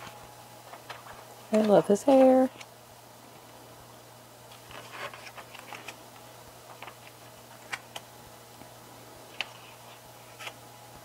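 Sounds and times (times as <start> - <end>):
pages clicking and tapping: 0.0 - 2.7, 4.5 - 6.0, 6.6 - 8.1
faint steady hum: 0.0 - 11.0
paper rustle: 4.5 - 6.0, 9.3 - 10.6.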